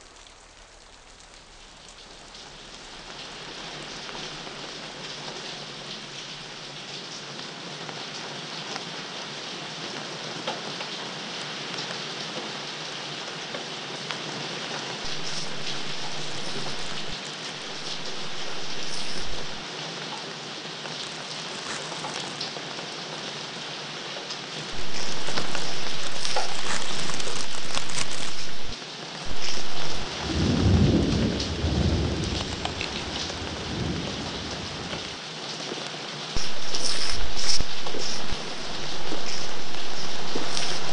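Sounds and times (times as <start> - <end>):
steady rain: 0.0 - 40.9
thunder rumbling: 15.1 - 19.6, 24.8 - 35.2
raindrop ticks: 24.8 - 33.9, 36.4 - 40.9.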